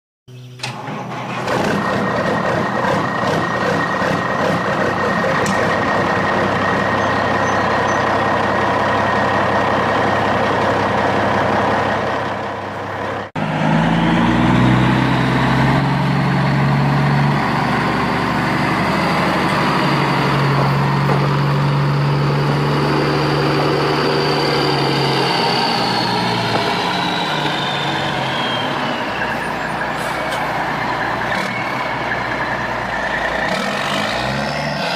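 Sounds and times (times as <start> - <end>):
deep engine hum: 0.3 - 34.9
truck engine running: 0.3 - 34.9.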